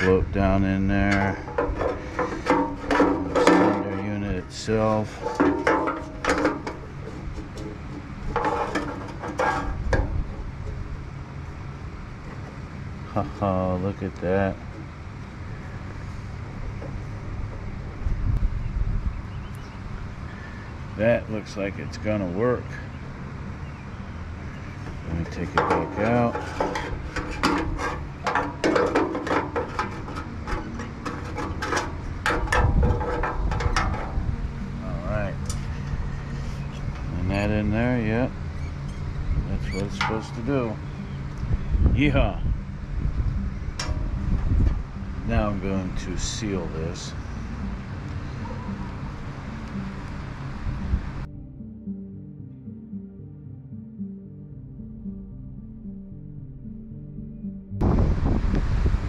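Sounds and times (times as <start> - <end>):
low steady hum: 0.0 - 59.0
metal plate clicks and scrapes: 1.1 - 4.2, 5.0 - 10.8, 25.2 - 34.3.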